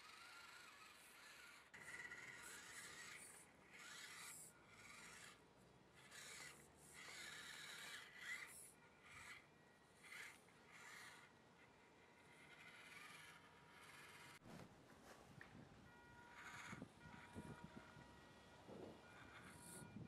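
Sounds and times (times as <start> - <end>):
small electric motor whining: 0.0 - 14.4, 15.8 - 20.0.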